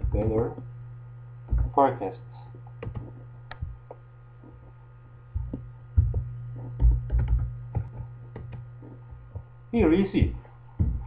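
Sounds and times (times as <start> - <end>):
low electrical hum: 0.0 - 11.0
computer keyboard keystrokes: 2.8 - 3.7, 6.8 - 8.6.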